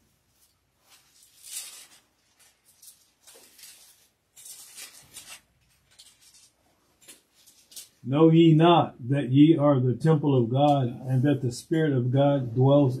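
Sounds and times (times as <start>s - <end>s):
thin pages rustling: 0.3s - 8.0s.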